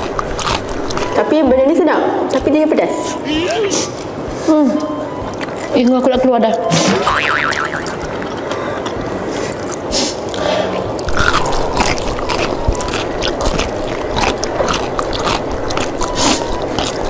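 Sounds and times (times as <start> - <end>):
biting and chewing chicken: 0.0 - 1.8, 6.5 - 17.0.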